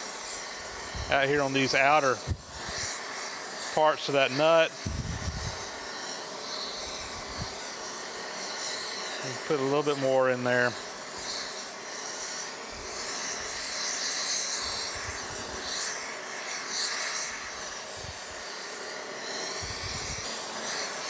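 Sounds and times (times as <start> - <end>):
gas torch flame hissing: 0.0 - 21.0
low rumbles in flame: 0.8 - 2.9, 4.0 - 5.7, 19.6 - 20.3.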